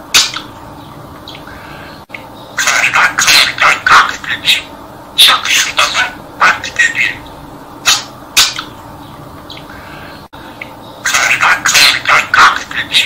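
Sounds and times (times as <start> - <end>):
budgerigar chirps: 0.1 - 0.5, 2.6 - 8.8
budgerigar chattering warble: 0.1 - 0.6, 2.6 - 8.8, 11.0 - 13.0.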